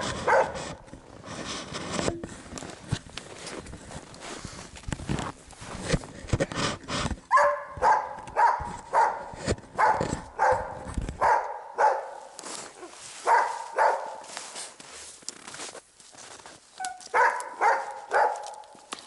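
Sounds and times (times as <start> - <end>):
footsteps crunching in snow: 0.0 - 6.1, 7.3 - 19.0
dog barking: 0.2 - 0.6, 7.3 - 12.3, 13.2 - 14.3, 16.8 - 18.8.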